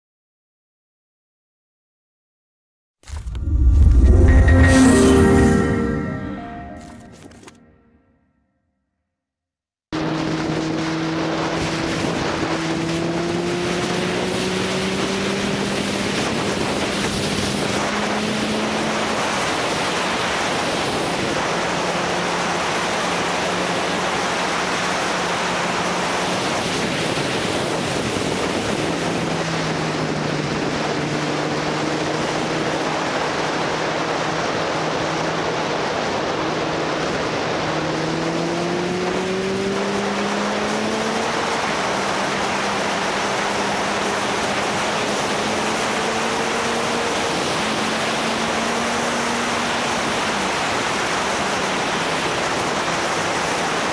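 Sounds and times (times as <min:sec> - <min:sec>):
motorcycle engine accelerating: 0:10.0 - 0:19.4, 0:28.3 - 0:50.5
wind rushing over microphone: 0:25.6 - 0:50.6.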